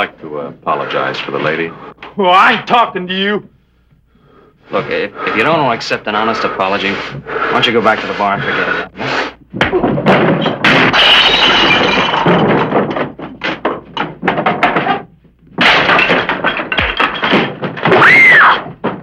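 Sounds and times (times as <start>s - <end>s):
punches: 9.5s - 11.0s
furniture crashing and breaking: 9.5s - 19.0s.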